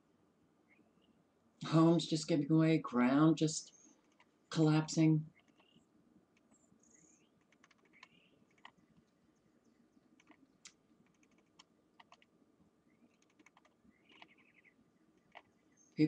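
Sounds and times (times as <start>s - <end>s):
computer keyboard and mouse clicks: 7.4s - 8.8s, 10.2s - 12.3s, 13.1s - 14.6s, 15.2s - 15.5s.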